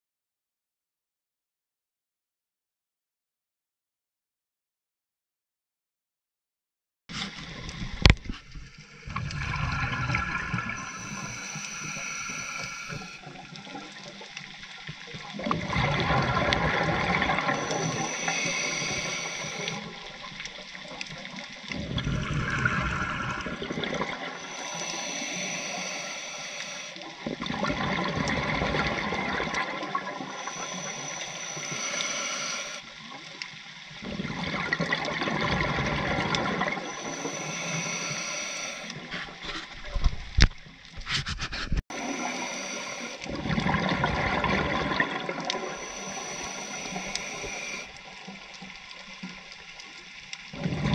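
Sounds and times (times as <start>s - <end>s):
bubbling exhaled air: 9.0s - 14.3s, 15.3s - 20.4s, 21.7s - 32.9s, 34.0s - 39.2s, 41.9s - 48.2s
regulator hissing inhale: 9.7s - 14.5s, 17.3s - 20.2s, 24.2s - 27.1s, 30.1s - 32.9s, 36.8s - 39.1s, 41.9s - 43.3s, 45.5s - 48.1s.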